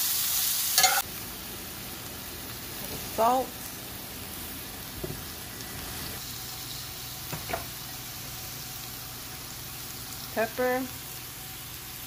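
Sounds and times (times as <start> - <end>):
vegetables sizzling in a skillet: 0.0 - 12.0.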